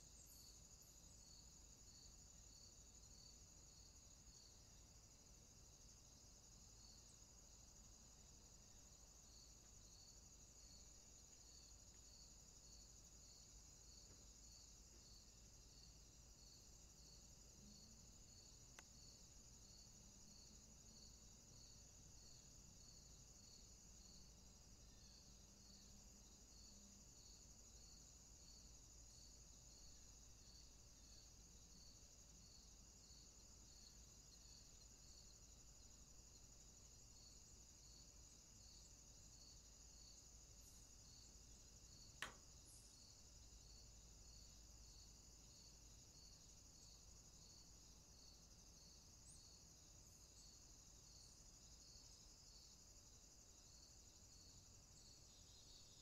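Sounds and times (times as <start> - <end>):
insect chirp: 0.0 - 56.0
insect trill: 0.0 - 56.0
sharp click: 42.2 - 42.4.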